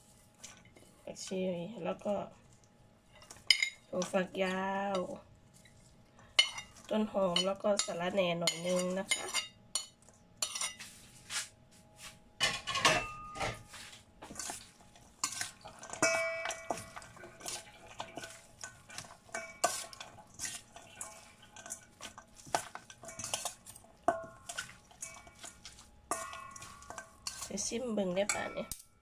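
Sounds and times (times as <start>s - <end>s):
cutlery clinking in metal bowl: 3.2s - 5.1s, 6.4s - 10.8s, 12.4s - 29.0s.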